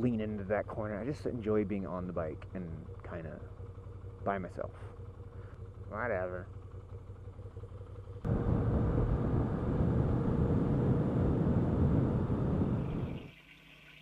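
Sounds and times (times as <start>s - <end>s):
motorcycle engine: 0.0s - 13.4s
wind noise on microphone: 8.3s - 13.3s.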